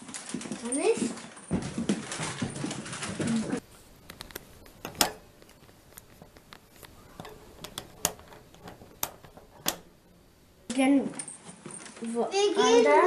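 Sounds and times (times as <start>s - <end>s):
small clicks and knocks: 4.0s - 9.9s.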